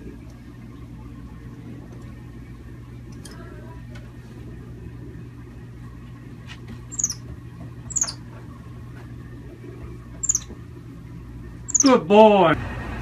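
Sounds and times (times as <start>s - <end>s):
low steady hum: 0.0s - 13.0s
monkey high-pitched peeps: 6.9s - 7.2s, 7.9s - 8.2s, 10.2s - 10.5s, 11.7s - 12.0s.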